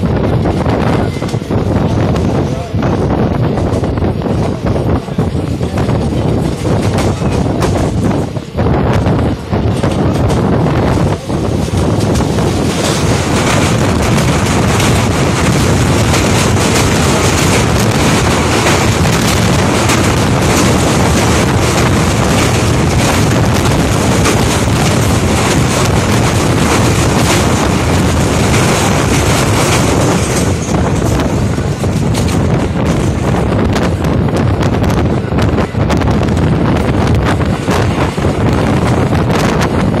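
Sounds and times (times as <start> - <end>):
train coaches rumbling: 0.0 - 40.0
wind buffeting microphone: 0.0 - 40.0
clicks and rattles on bridge: 9.8 - 33.3.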